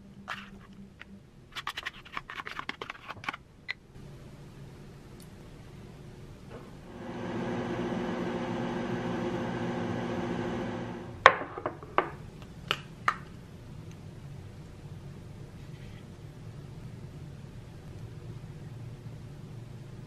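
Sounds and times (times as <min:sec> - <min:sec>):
microwave oven humming: 0:06.4 - 0:11.3.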